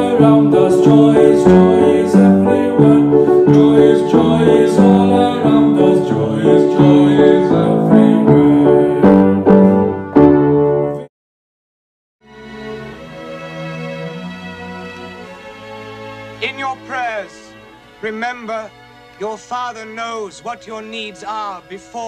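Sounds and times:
struck melodic notes: 12.3s - 22.0s.

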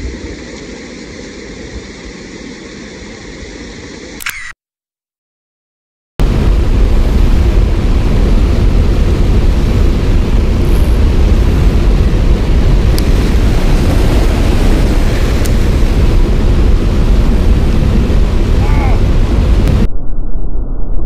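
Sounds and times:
wind buffeting microphone: 6.2s - 21.0s.

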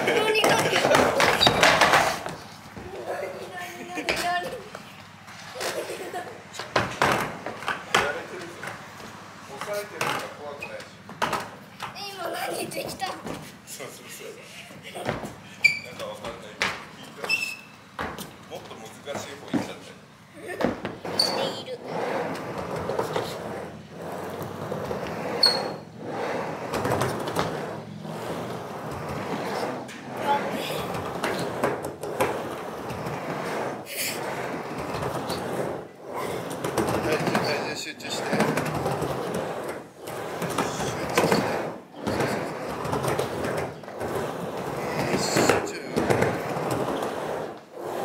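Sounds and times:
skateboard wheels rolling on ramp: 0.0s - 48.0s.

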